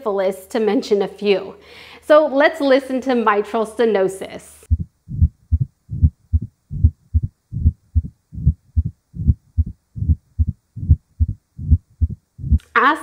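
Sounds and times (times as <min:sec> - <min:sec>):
heartbeat: 0:04.7 - 0:12.6
low rumbling heart murmur: 0:04.7 - 0:12.6.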